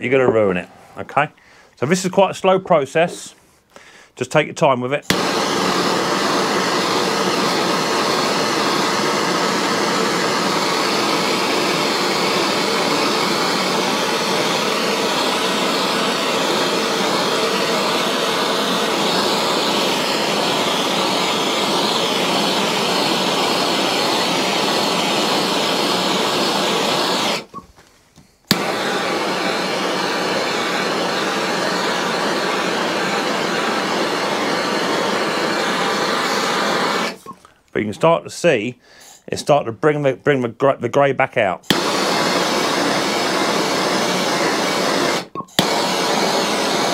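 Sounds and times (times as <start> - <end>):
blowtorch click: 5.1 - 27.6, 28.5 - 37.4, 41.7 - 46.9
blowtorch hissing: 5.1 - 27.6, 28.5 - 37.3, 41.7 - 46.9.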